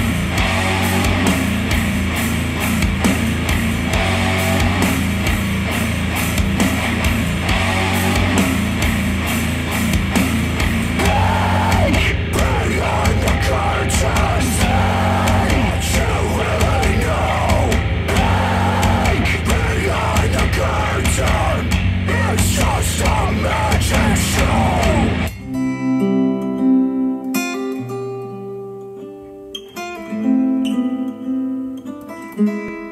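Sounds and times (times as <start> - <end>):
rock song through speakers: 0.0 - 26.6
person singing: 10.8 - 25.4.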